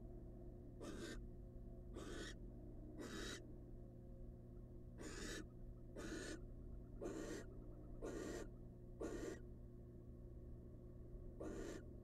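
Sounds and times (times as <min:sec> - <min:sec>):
steady low hum: 0:00.0 - 0:12.0
owl hoarse hissing calls: 0:00.8 - 0:01.2, 0:02.0 - 0:02.4, 0:03.0 - 0:03.4, 0:05.0 - 0:05.4, 0:06.0 - 0:06.4, 0:07.0 - 0:09.4, 0:11.4 - 0:11.9.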